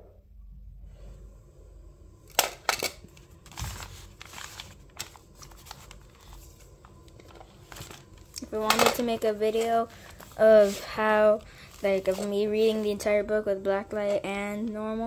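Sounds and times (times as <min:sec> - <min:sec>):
paper pages flipping: 0:03.1 - 0:12.9.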